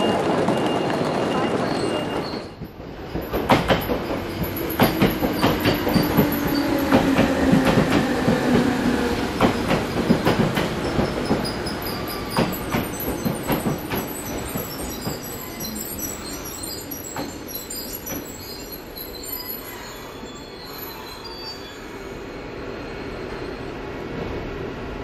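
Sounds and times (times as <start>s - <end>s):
train wheels clicking on rails: 0.0s - 18.8s
train rumble: 0.0s - 19.3s.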